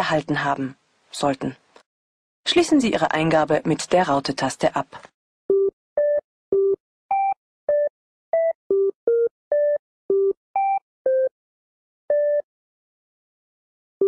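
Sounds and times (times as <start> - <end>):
telephone keypad touch-tones: 5.5 - 11.3, 12.1 - 12.4.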